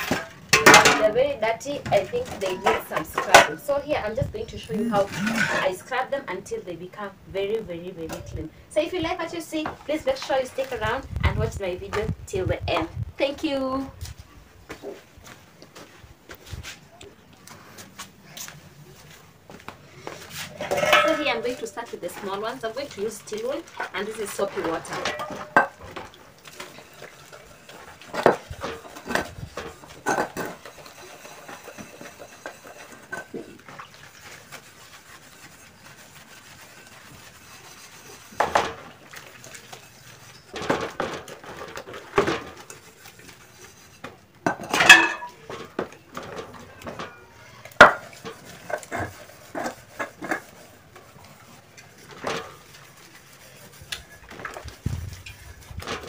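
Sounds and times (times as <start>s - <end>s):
metal pots clinking together: 0.0s - 3.7s, 4.8s - 5.9s, 20.6s - 33.8s, 44.4s - 50.6s
steel wool scrubbing: 20.2s - 47.2s, 47.8s - 56.0s.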